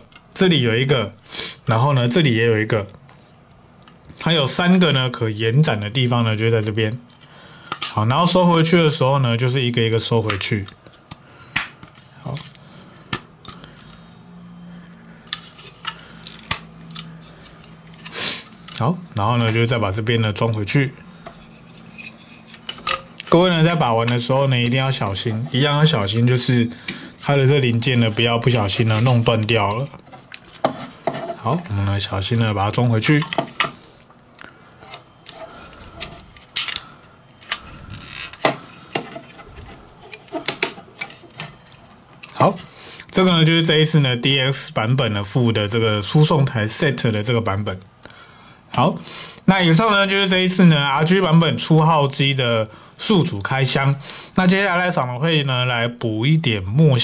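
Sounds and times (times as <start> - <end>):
plastic parts clicking: 36.0 - 42.4.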